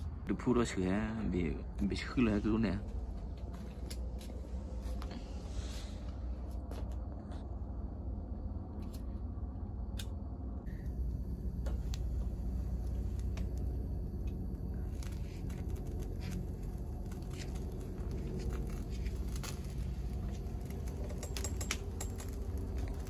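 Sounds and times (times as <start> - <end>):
burner flame rushing: 8.6 - 23.0
sharp crackles and clicks: 9.9 - 23.0.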